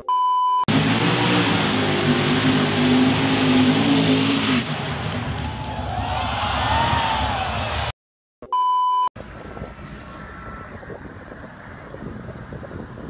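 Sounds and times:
test-tone beep: 0.0s - 0.7s, 8.4s - 9.1s
truck engine revving hard: 0.7s - 7.9s.

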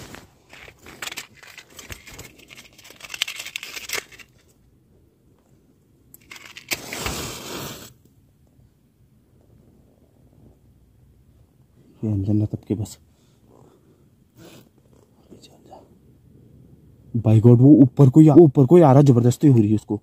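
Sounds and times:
matchbox rustling and clicking: 0.2s - 4.6s, 6.1s - 7.9s
match struck and flaring: 6.3s - 8.0s.

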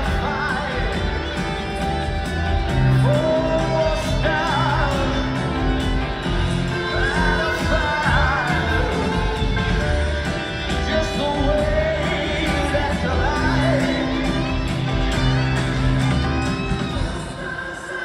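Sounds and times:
lead vocals singing: 0.0s - 10.1s, 10.8s - 15.0s, 16.9s - 18.0s
crowd shouting along: 0.0s - 10.9s
live rock band playing: 0.0s - 18.0s.

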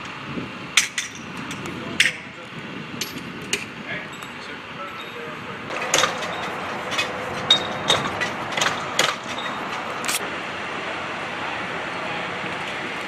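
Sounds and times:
hand tools clinking on metal: 3.0s - 10.2s.

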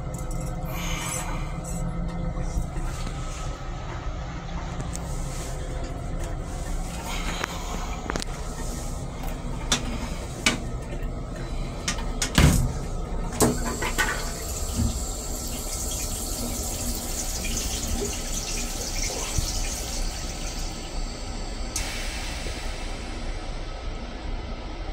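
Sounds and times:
rinse water hissing: 6.4s - 23.3s
toilet flush clunk: 11.9s - 20.9s.

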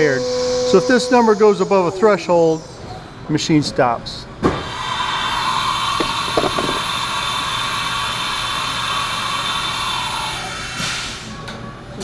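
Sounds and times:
mill spindle high whine: 0.0s - 3.3s.

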